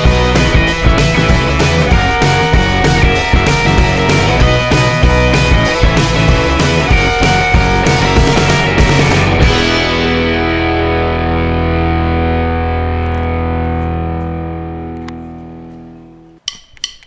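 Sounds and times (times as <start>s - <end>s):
distorted electric guitar chord: 0.0s - 16.3s.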